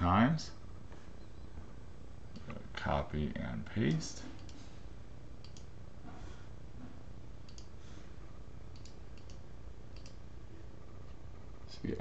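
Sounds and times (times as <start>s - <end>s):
steady low hum: 0.0s - 12.0s
computer mouse and keyboard clicks: 3.9s - 4.6s, 7.4s - 7.7s, 8.7s - 10.2s.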